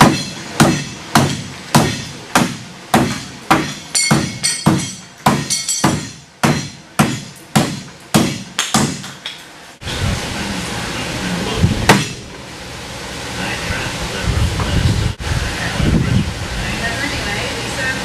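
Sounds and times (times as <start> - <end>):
knife chopping into wood: 0.0 - 9.2.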